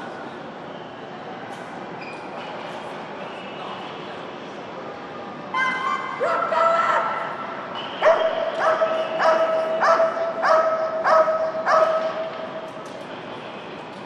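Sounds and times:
dog barking in echoing hall: 5.6 - 7.3, 8.0 - 12.4.

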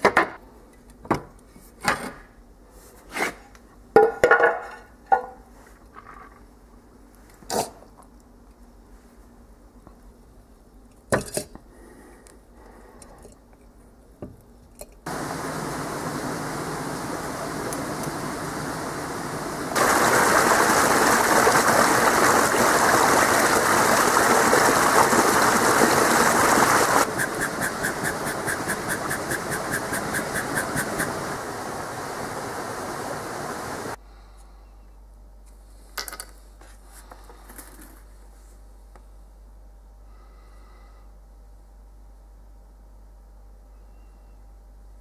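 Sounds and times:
bellows air rushing: 15.1 - 34.0.

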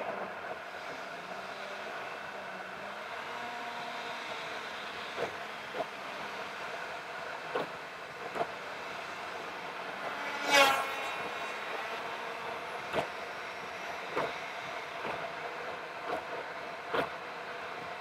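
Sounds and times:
car road noise hum: 0.0 - 18.0.

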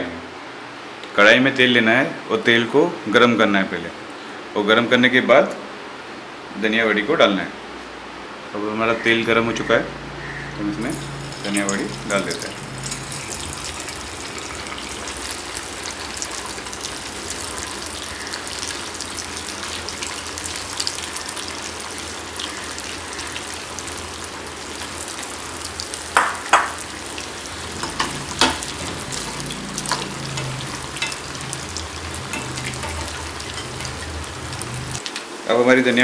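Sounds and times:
food deep-frying in hot oil: 10.7 - 36.0.

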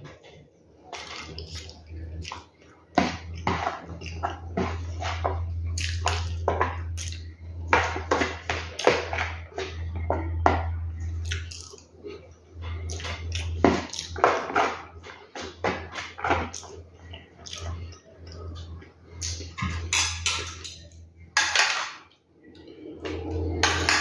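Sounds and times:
low hum: 0.1 - 24.0
wet chewing: 1.1 - 4.6, 5.6 - 7.5, 11.2 - 14.2.

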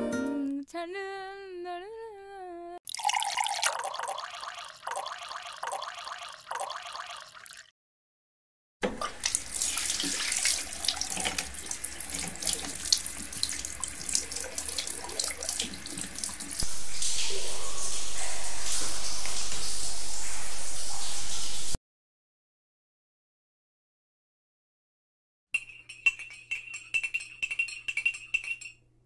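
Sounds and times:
milk pouring into glass: 2.9 - 7.7.

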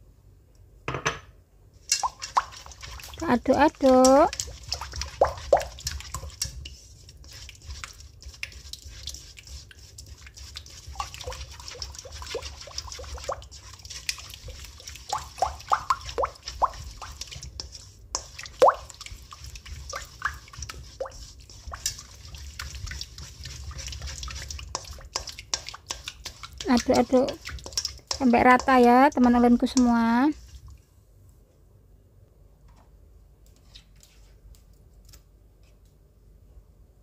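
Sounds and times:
batter plopping and squelching: 1.8 - 30.7.

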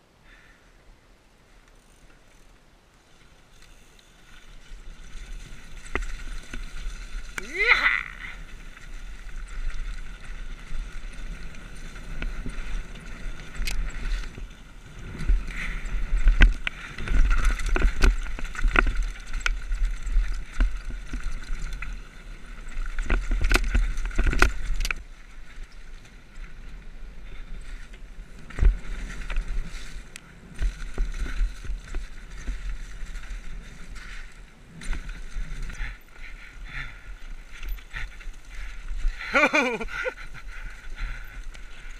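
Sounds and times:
tyres rolling over dirt: 1.9 - 41.9
bike knocks and rattles: 8.6 - 25.7, 28.4 - 36.1.

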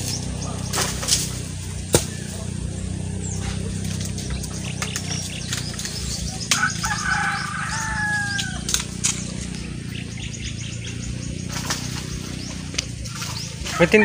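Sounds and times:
steady low rumble: 0.0 - 14.0
rooster crowing: 6.5 - 9.0.

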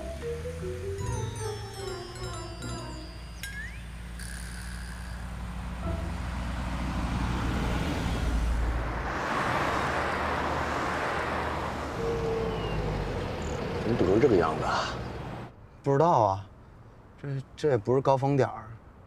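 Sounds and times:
city traffic noise: 0.0 - 19.0
car engine driving by: 3.6 - 15.5.

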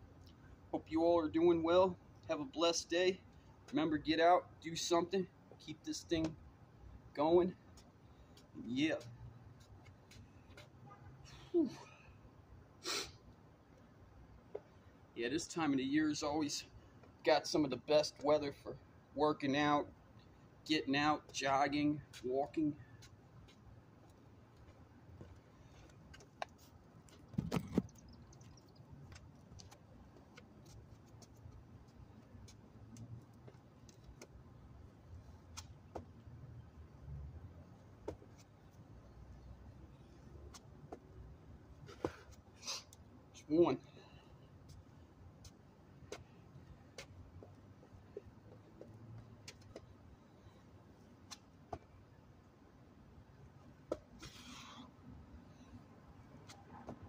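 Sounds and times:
hands and sneakers tapping concrete: 26.1 - 28.0
knocks and rustling: 26.1 - 28.0.

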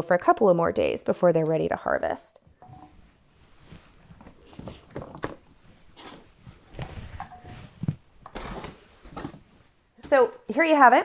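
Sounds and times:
paper bags rustling: 3.7 - 9.6.

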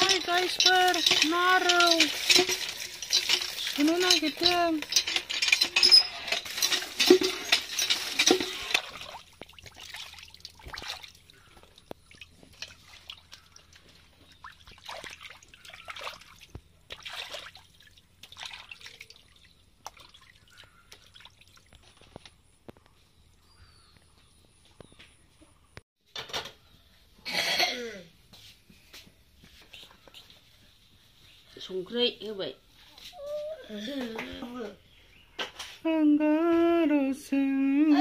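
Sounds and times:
water dripping: 0.0 - 5.6, 6.4 - 22.4
water swishing and splashing in pan: 0.0 - 22.1.

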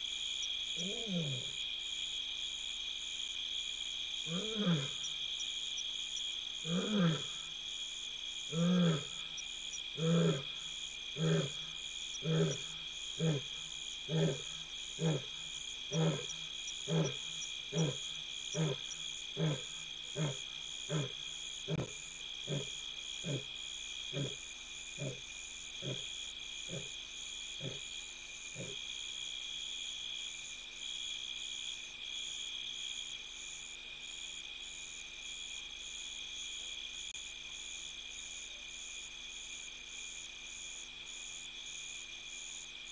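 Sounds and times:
night insects trilling: 0.0 - 42.9
lion roaring grunts: 4.3 - 5.0, 6.7 - 7.4, 8.5 - 9.2, 10.0 - 10.6, 11.2 - 23.5, 24.1 - 24.4, 25.8 - 26.1.

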